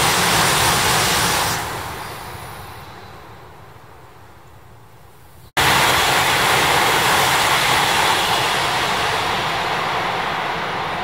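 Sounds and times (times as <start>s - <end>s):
high speed train rushing past: 0.0s - 11.0s.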